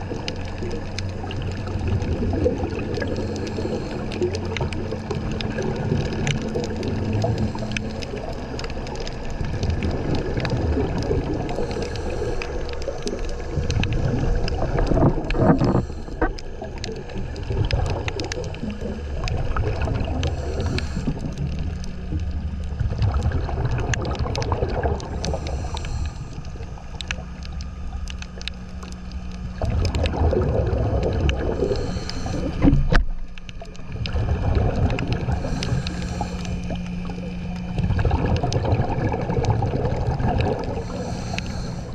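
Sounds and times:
exhaled bubbles rumbling: 0.0s - 41.9s
steady low hum: 0.0s - 41.9s
scuba regulator breathing: 2.6s - 4.7s, 7.1s - 9.2s, 11.2s - 19.3s, 20.0s - 21.6s, 24.7s - 27.5s, 31.3s - 33.0s, 35.2s - 37.7s, 40.4s - 41.9s.

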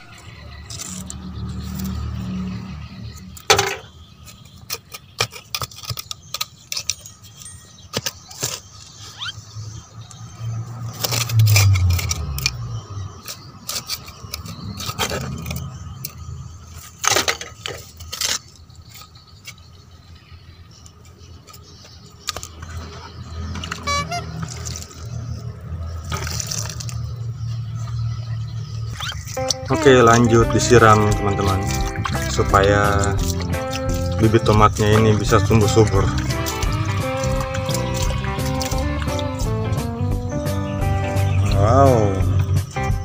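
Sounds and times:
low rumbles: 9.6s - 13.2s, 22.6s - 43.0s
hands scraping stony soil: 28.9s - 43.0s.

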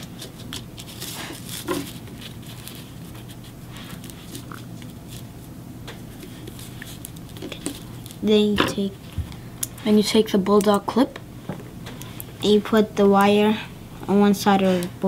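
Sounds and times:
rustling of wire and cardstock: 0.0s - 9.3s.

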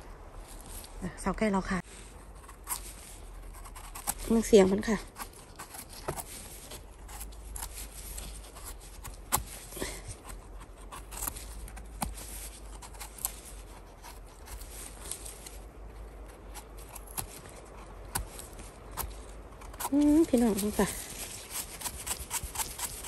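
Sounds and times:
footsteps through undergrowth: 0.0s - 1.2s, 20.4s - 22.3s
rustling of moss and leaves: 0.0s - 23.0s
twigs crackling and snapping: 2.4s - 23.0s.

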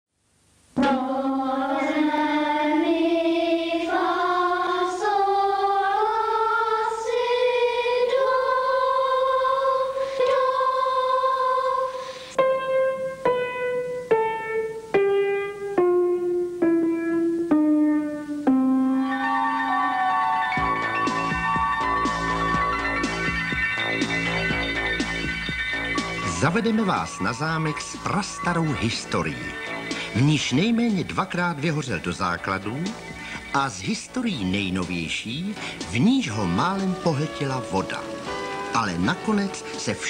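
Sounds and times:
children's choir singing: 0.8s - 12.4s, 25.5s - 32.8s.

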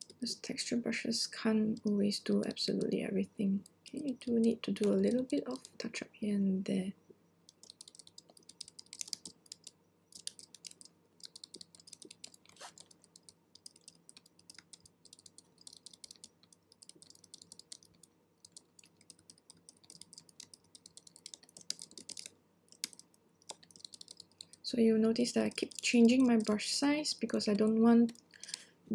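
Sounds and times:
computer keyboard clicking: 4.0s - 5.8s, 7.5s - 24.6s, 25.2s - 26.6s.

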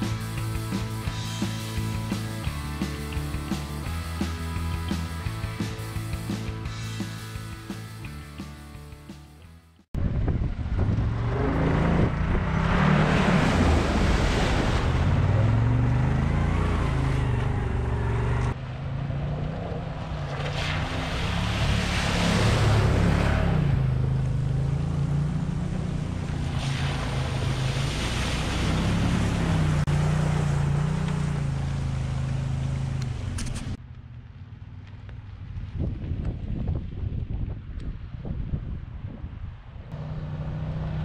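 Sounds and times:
engine revving: 10.3s - 33.8s, 39.9s - 41.0s
water splashing off tyres: 12.0s - 16.2s, 19.0s - 33.8s.

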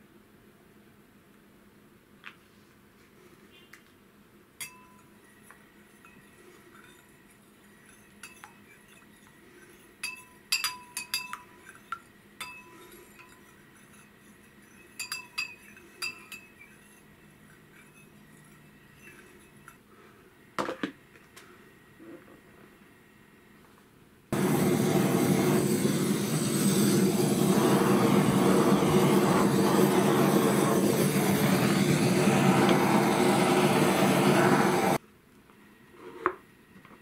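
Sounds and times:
spoon clinking against glass bowl: 4.6s - 5.2s, 5.9s - 19.8s.

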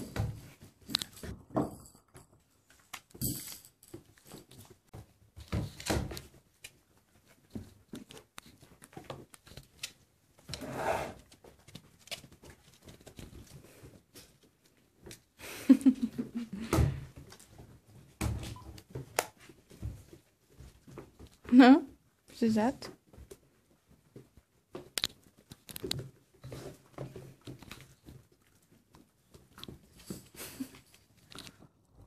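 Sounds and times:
clicks knocks and rustles: 22.9s - 31.7s.

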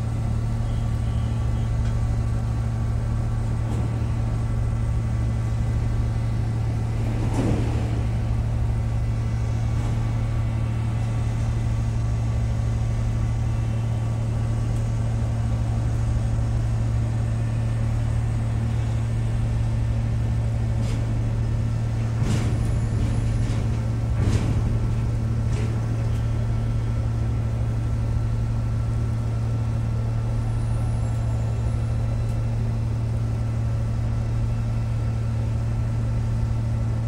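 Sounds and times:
ship engine droning: 0.0s - 37.0s.

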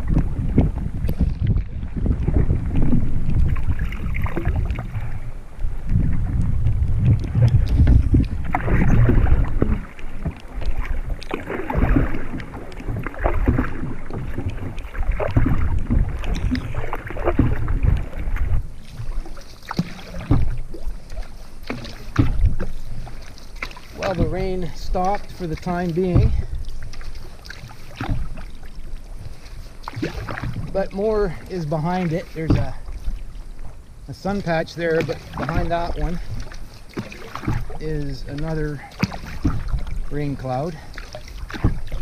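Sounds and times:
wind noise on microphone: 0.0s - 21.0s, 21.7s - 23.2s, 37.4s - 40.8s
paddle strokes splashing: 0.0s - 42.0s
water splashing around canoe: 0.0s - 42.0s.

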